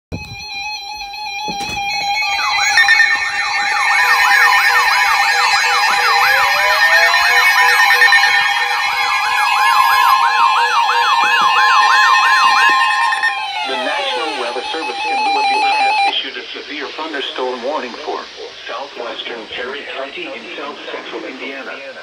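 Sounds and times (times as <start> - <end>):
siren-like warble: 0.1 - 16.2
steady alert tones: 0.2 - 16.1.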